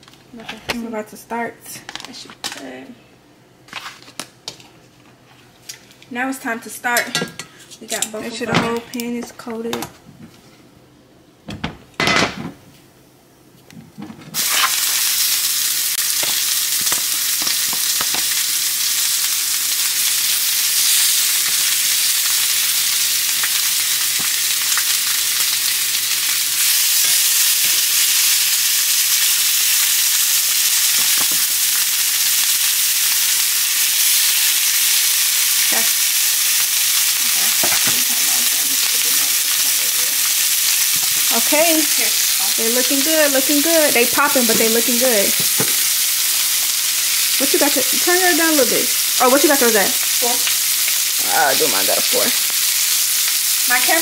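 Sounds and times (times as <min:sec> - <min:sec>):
meat sizzling in oil: 0:14.4 - 0:54.0.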